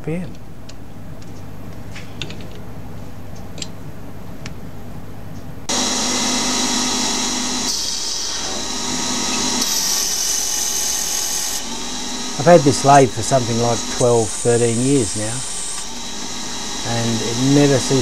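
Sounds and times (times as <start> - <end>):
lathe cutting brass: 5.7 - 18.0
lathe spindle whine: 5.7 - 18.0.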